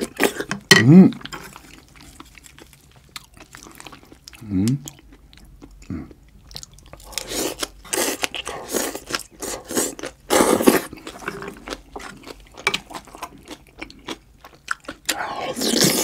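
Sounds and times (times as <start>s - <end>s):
noisy slurping: 15.1s - 16.0s.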